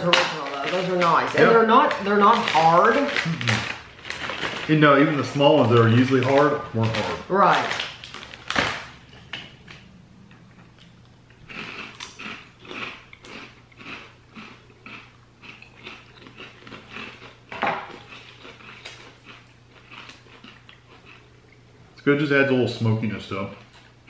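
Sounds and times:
crunchy chewing: 0:07.7 - 0:21.7.

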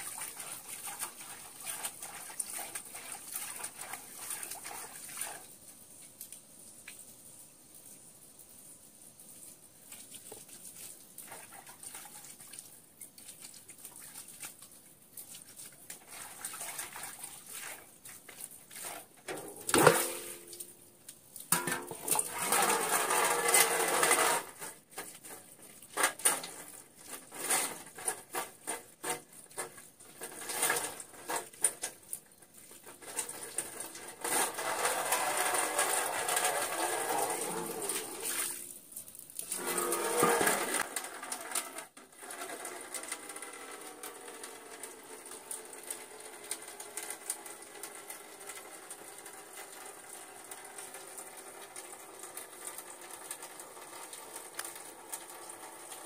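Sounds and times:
water sloshing in metal basin: 0:00.0 - 0:05.5, 0:09.9 - 0:41.7
knocks on metal basin: 0:19.3 - 0:20.5, 0:21.5 - 0:22.3.

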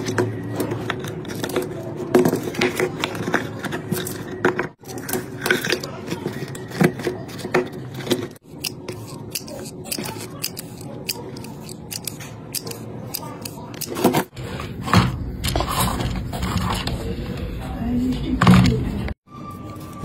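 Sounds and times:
plastic and metal clicks and scrapes: 0:00.0 - 0:14.5.

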